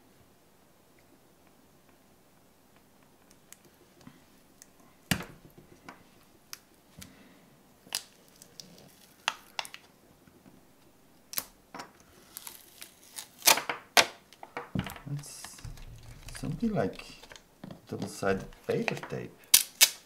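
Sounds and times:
plastic wrapping crackling: 7.8 - 10.0, 11.3 - 20.0.

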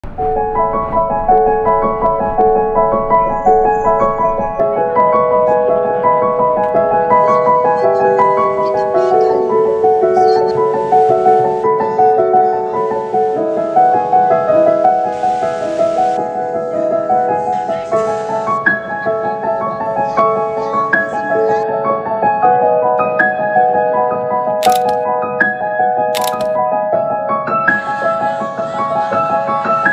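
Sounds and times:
slow piano melody: 0.0 - 29.9
camera shutter click: 24.6 - 25.0, 26.2 - 26.5.

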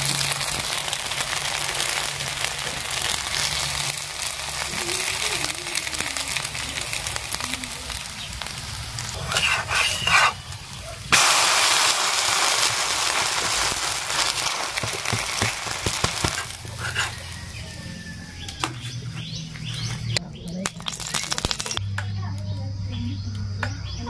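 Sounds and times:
batter sizzling in hot oil: 0.0 - 20.1, 20.8 - 21.8
metal spatula scraping: 9.1 - 10.5, 16.2 - 17.4.

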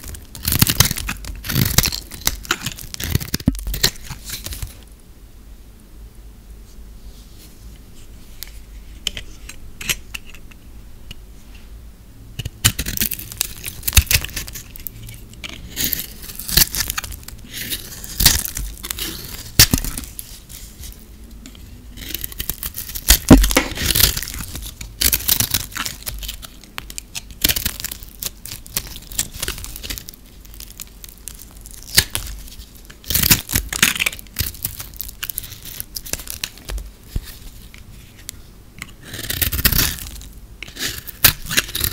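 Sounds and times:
knife scraping soap: 9.0 - 10.4, 12.4 - 41.9.

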